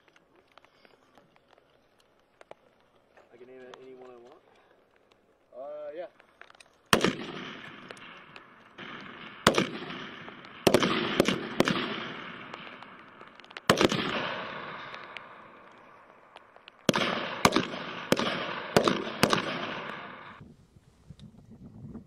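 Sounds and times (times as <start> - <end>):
rifle shots echoing: 6.2 - 20.4.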